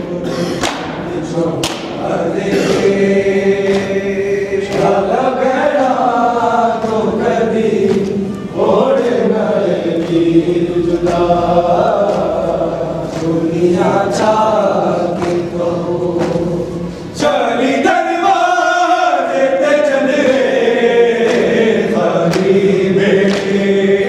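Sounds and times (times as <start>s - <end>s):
men chanting together: 0.0s - 24.0s.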